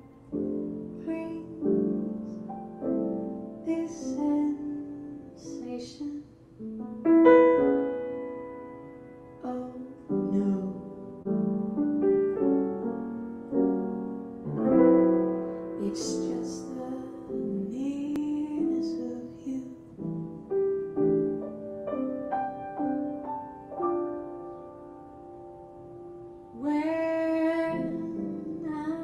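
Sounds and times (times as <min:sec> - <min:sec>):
woman singing: 0:00.0 - 0:02.5, 0:03.6 - 0:06.4, 0:09.4 - 0:11.1, 0:15.8 - 0:20.1, 0:26.5 - 0:29.0
piano chords: 0:00.0 - 0:29.0.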